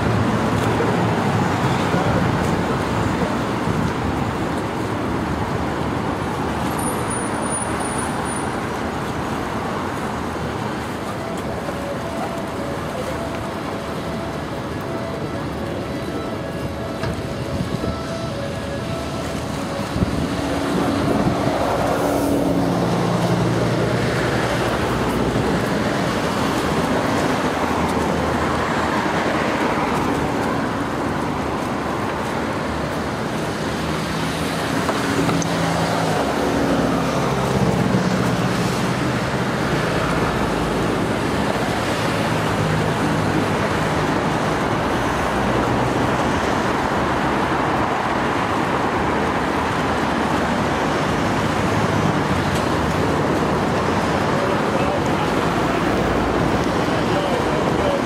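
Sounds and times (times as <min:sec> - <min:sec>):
vehicles passing: 0:00.0 - 0:58.0.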